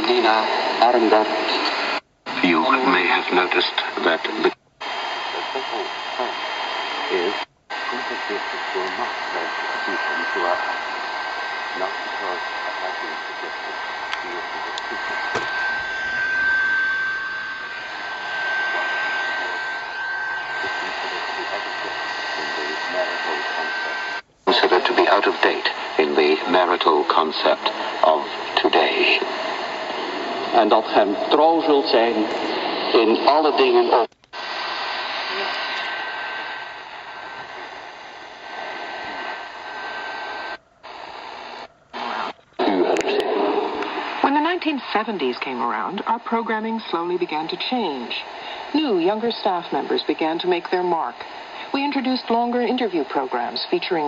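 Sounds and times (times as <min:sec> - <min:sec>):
shortwave radio static: 0:00.0 - 0:54.0
high whistle: 0:15.3 - 0:22.0.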